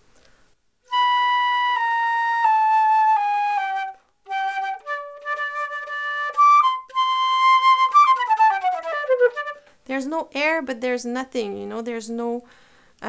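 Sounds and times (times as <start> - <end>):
flute melody: 0.9 - 9.8.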